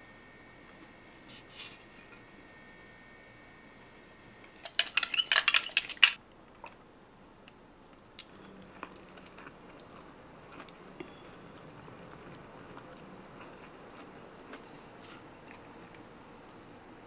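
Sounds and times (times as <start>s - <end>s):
ice and straw clinking in glass: 4.6s - 6.2s.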